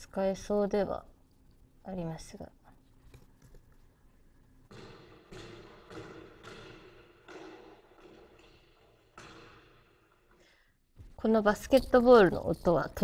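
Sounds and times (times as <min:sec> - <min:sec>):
basketball bouncing: 0:04.7 - 0:10.1.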